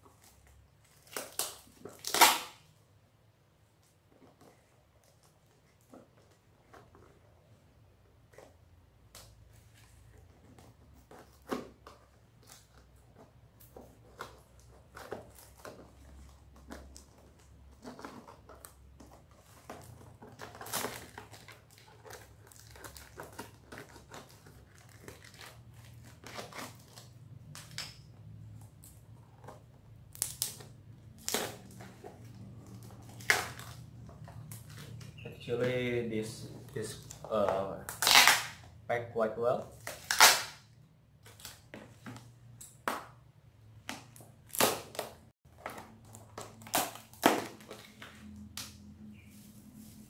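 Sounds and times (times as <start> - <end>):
knife cutting packing tape: 1.0 - 2.7, 37.9 - 38.7, 39.8 - 40.7
plastic crinkling and rustling: 3.8 - 38.6, 44.0 - 50.0.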